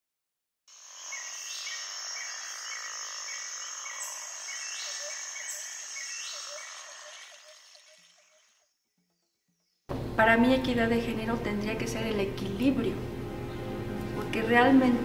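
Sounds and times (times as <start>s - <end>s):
frogs calling: 0.7s - 9.4s
insects trilling: 0.7s - 9.8s.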